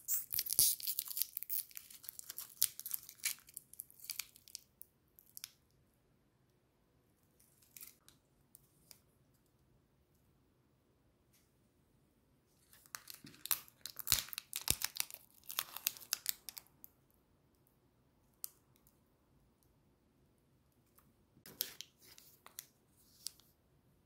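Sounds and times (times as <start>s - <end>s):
candy wrapper crinkling and tearing: 0.0s - 5.6s, 12.8s - 16.8s.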